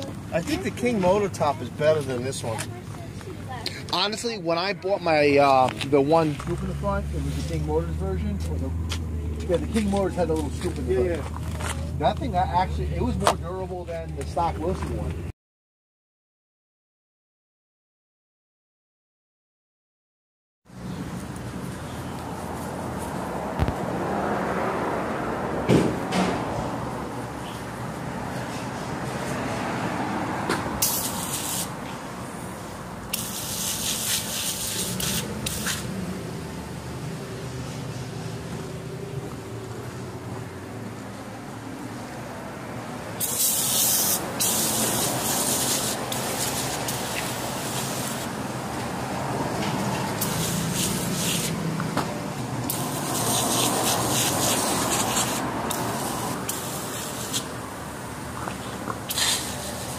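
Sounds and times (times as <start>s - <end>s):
pressure washer spray hissing: 30.8s - 31.8s, 33.1s - 35.9s, 43.2s - 48.4s, 50.2s - 51.6s, 52.7s - 57.6s, 59.0s - 59.9s.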